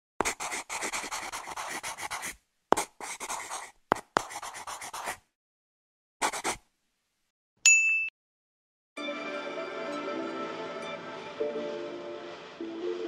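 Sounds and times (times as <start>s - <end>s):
pencil scratching on paper: 0.2s - 5.2s, 6.2s - 6.6s.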